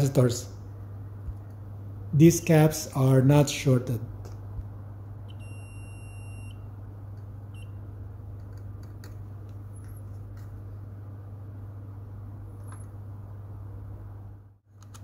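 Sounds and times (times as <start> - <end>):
low steady hum: 0.0 - 15.0
multimeter buzzer beeping: 5.3 - 6.7, 7.5 - 7.8.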